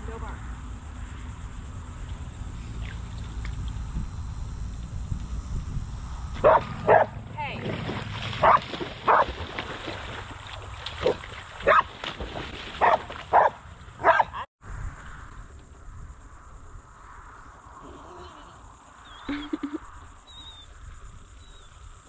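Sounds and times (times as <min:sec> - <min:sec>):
dog barking: 0:06.4 - 0:07.2, 0:08.4 - 0:09.3, 0:11.0 - 0:11.9, 0:12.8 - 0:14.5.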